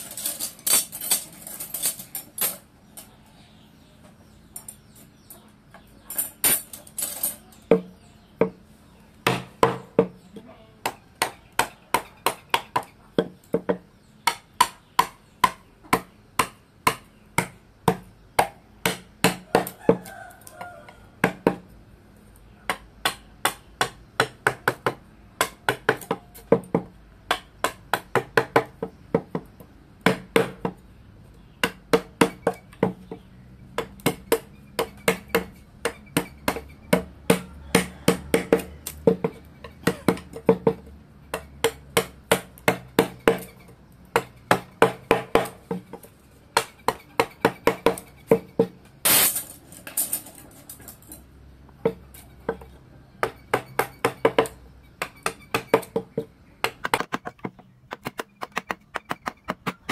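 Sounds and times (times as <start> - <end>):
mallet striking chisel into wood: 10.8 - 19.8, 53.2 - 59.9.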